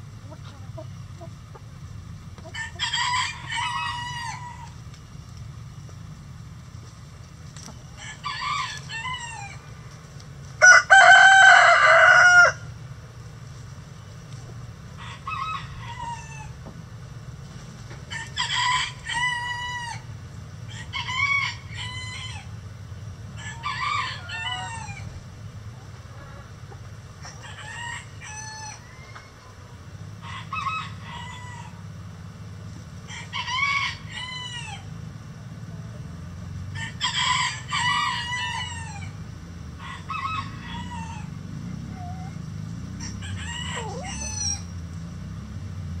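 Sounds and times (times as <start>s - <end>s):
steady low hum: 0.0s - 21.0s
rooster crowing: 2.5s - 4.8s, 8.0s - 9.6s, 10.6s - 12.7s, 15.0s - 16.6s, 18.1s - 20.1s, 20.7s - 22.5s, 23.4s - 25.1s, 27.3s - 29.5s, 30.2s - 31.8s, 33.1s - 34.9s, 36.7s - 39.2s, 39.8s - 42.3s, 43.0s - 44.7s.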